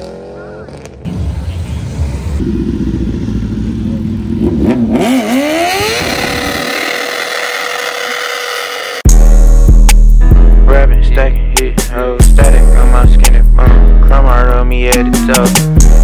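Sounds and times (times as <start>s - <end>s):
motorcycle engine revving: 0.0s - 9.2s.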